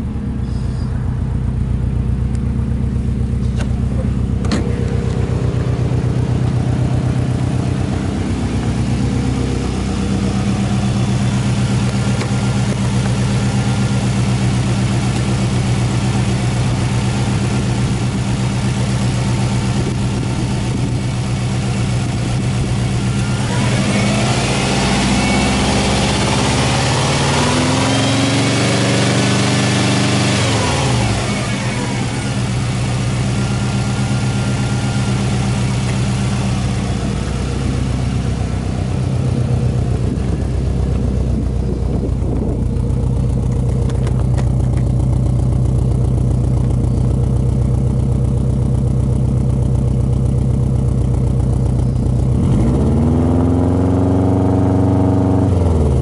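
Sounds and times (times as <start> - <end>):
car engine idling: 0.0 - 56.0.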